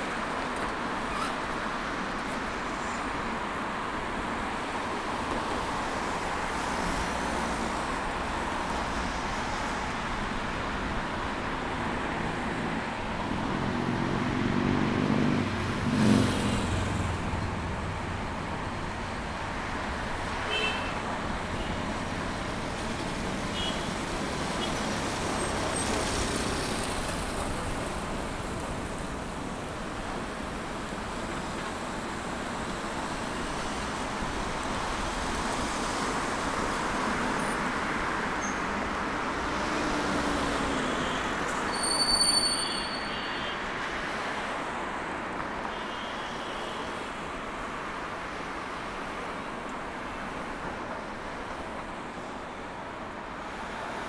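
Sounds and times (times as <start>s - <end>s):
hum of passing cars: 0.0s - 41.7s.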